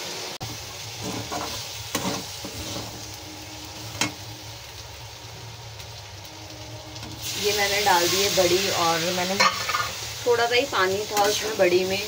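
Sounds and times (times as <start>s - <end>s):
potatoes sizzling in oil: 0.0s - 12.0s
metal spatula scraping pan: 1.0s - 3.1s.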